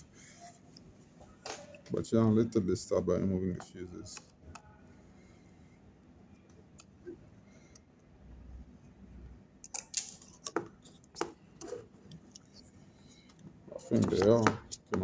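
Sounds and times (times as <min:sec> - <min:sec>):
tools and circuit board clicking: 0:09.6 - 0:10.6.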